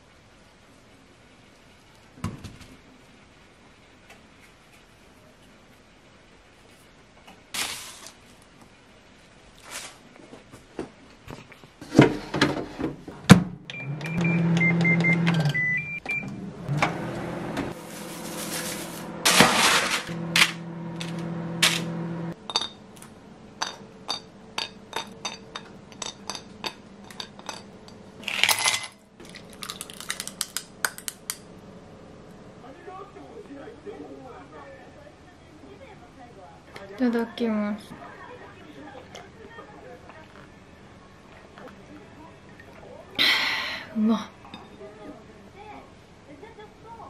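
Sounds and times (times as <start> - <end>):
oven fan humming: 11.8 - 28.2, 29.1 - 34.8
oven control panel beeps: 13.7 - 16.4.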